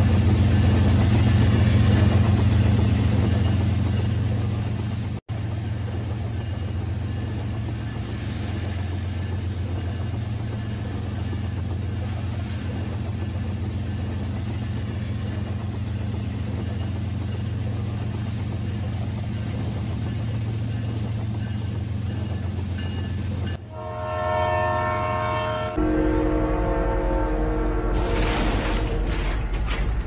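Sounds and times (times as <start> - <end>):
low train rumble with crackling: 0.0 - 30.0
held horn-like chord: 23.7 - 28.2.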